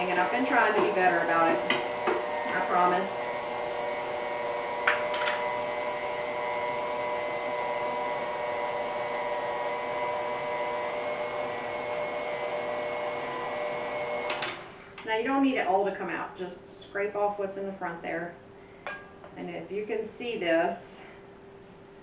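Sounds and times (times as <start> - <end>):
mixer motor hum and whine: 0.0 - 15.4.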